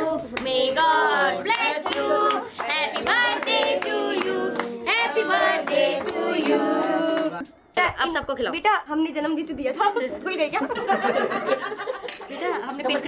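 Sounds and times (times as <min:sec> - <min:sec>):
group of people singing: 0:00.0 - 0:07.4
hands clapping: 0:00.2 - 0:07.5, 0:12.0 - 0:12.3.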